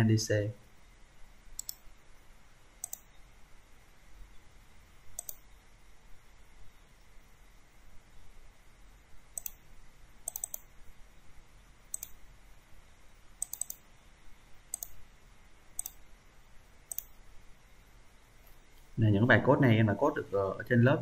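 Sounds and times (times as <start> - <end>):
computer mouse clicking: 1.6 - 1.8, 2.8 - 3.1, 5.2 - 5.5, 9.4 - 9.6, 10.2 - 10.7, 11.9 - 12.2, 13.4 - 13.8, 14.7 - 15.0, 15.8 - 16.0, 16.9 - 17.2.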